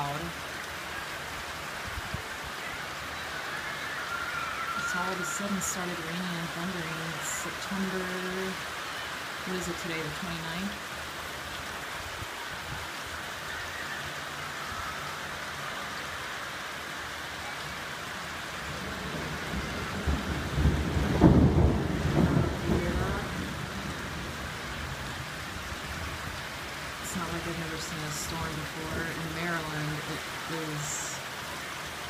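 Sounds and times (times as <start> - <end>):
steady rain falling: 0.0 - 32.0
thunder rumbling: 18.6 - 31.1.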